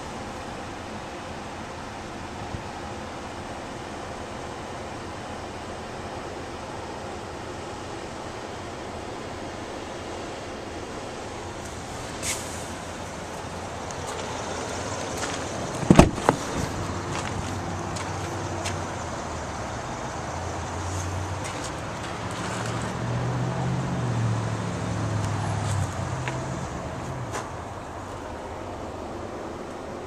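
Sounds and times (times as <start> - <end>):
low vehicle hum: 0.0 - 30.0
outdoor background noise: 0.0 - 30.0
vehicle door thumping shut: 15.8 - 16.7.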